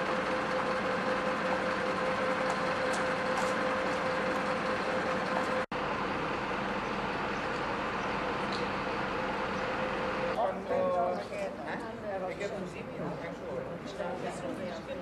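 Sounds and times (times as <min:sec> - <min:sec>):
vehicle engine droning: 0:00.0 - 0:10.4.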